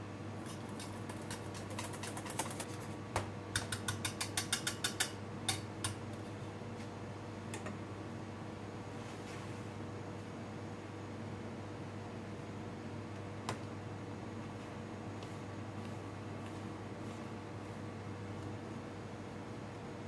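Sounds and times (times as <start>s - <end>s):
steady low hum: 0.0s - 20.0s
whisk clicking against metal bowl: 0.5s - 2.9s, 3.6s - 6.0s.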